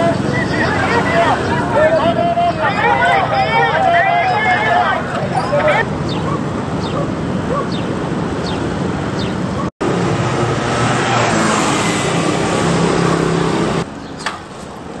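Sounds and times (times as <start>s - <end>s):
motor vehicles humming: 0.0s - 15.0s
engine running: 9.8s - 13.9s.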